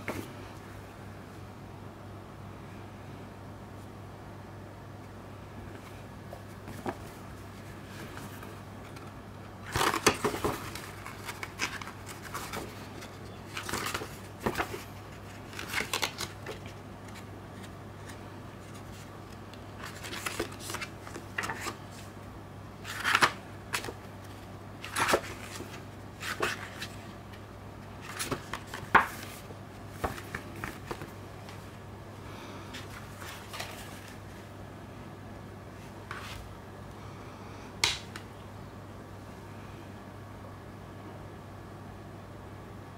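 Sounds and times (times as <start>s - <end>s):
faint low hum: 0.0s - 42.9s
paper pages turning: 6.4s - 22.1s, 22.8s - 27.0s, 28.0s - 31.6s, 32.7s - 34.3s.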